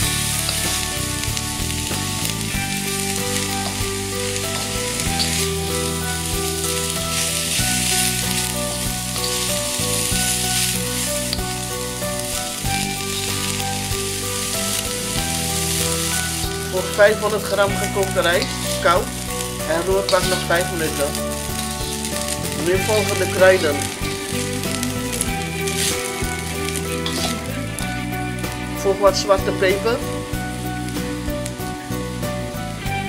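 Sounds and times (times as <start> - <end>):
background music with held notes: 0.0 - 33.0
vegetables sizzling in oil: 0.0 - 33.0.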